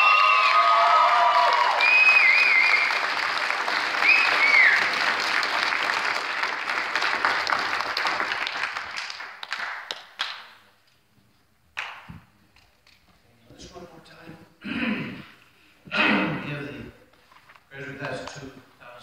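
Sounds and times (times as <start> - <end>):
high cheers: 0.0 - 5.3
audience applauding: 0.0 - 10.6.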